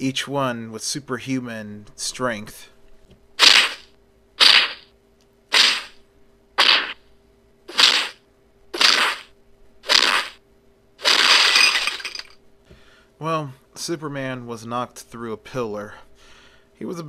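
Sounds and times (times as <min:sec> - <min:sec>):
punch and kick hits: 0:03.4 - 0:04.8, 0:05.6 - 0:06.0.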